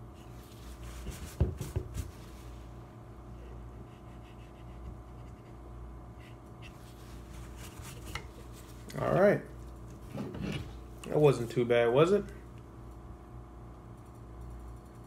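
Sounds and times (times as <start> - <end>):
steady low hum: 0.0 - 15.0
cloth scratching and rubbing: 0.3 - 2.6, 6.7 - 8.8.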